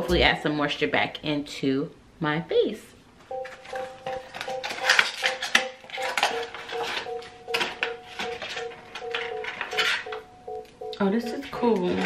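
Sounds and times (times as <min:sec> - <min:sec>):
packaging rustling and clicking: 0:03.4 - 0:10.2.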